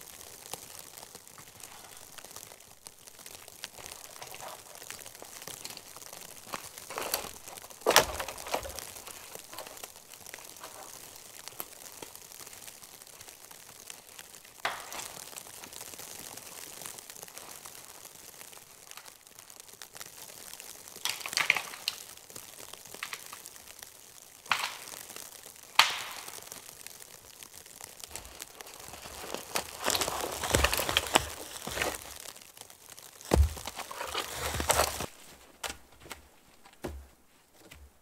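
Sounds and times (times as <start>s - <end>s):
dead wood cracking: 0.0s - 38.0s
footsteps crunching through snow: 3.7s - 11.0s, 28.0s - 32.3s, 33.2s - 38.0s.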